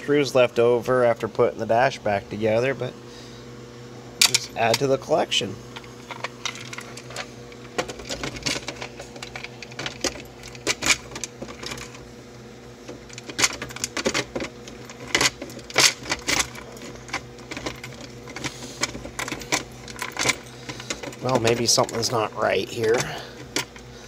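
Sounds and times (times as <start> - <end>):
steady low hum: 0.0 - 24.0
loose screws rattling: 5.7 - 12.0, 12.9 - 23.9.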